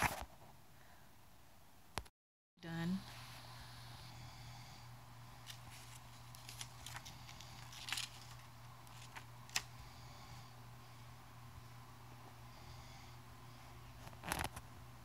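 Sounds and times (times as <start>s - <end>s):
steady low hum: 2.6s - 15.0s
card rustling: 5.4s - 9.7s
paper tags clicking: 5.4s - 9.7s.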